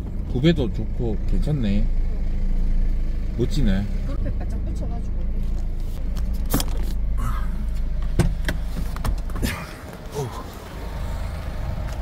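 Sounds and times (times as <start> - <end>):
car engine running: 0.0 - 12.0
car door clicking open: 8.0 - 10.0.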